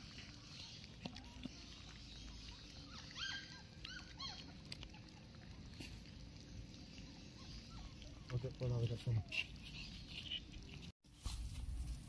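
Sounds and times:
puppies lapping and smacking: 0.0s - 10.9s
puppy squeaky whimpers: 2.5s - 5.0s.

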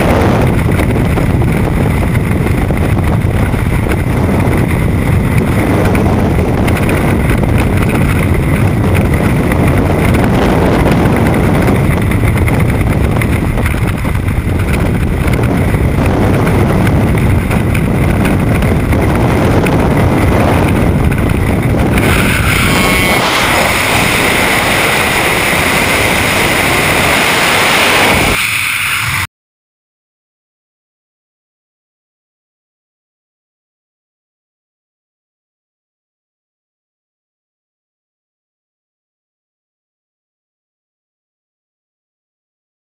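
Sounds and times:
wind rushing over microphone: 0.0s - 29.3s.

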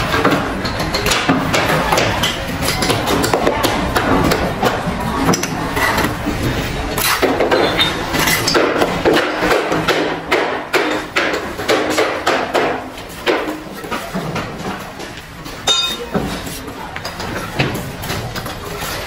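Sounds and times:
sharp ringing clink: 15.7s - 16.1s.

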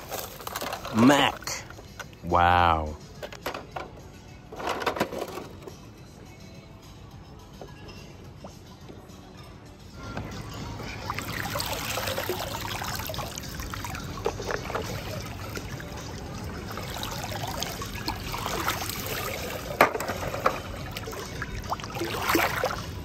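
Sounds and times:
water splashing and trickling: 0.0s - 2.7s, 10.0s - 23.0s.

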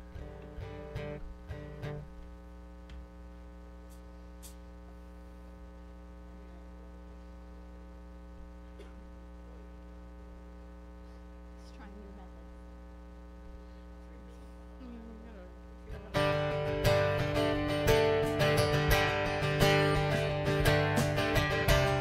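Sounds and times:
acoustic guitar strumming: 0.0s - 2.2s, 15.9s - 22.0s
electrical mains hum: 0.0s - 22.0s.

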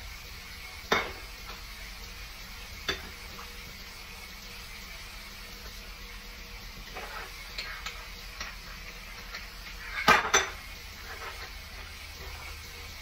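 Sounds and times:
metal kitchenware clinking: 9.2s - 11.6s.

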